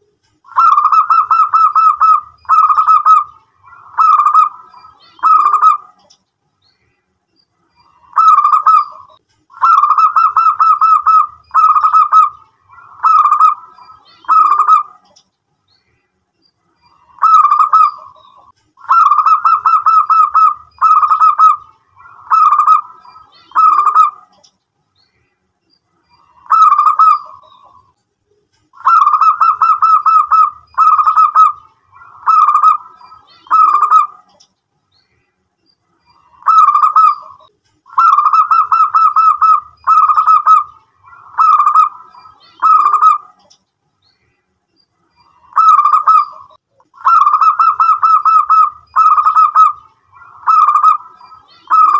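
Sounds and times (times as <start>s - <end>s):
dove cooing: 0.5s - 6.1s, 8.0s - 15.2s, 17.0s - 24.4s, 26.2s - 27.8s, 28.8s - 34.4s, 36.2s - 43.5s, 45.4s - 51.9s.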